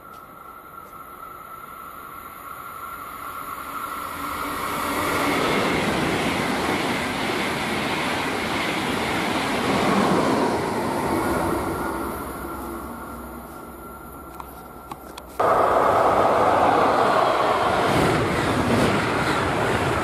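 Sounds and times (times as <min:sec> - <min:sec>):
electric train passing: 0:00.0 - 0:20.0.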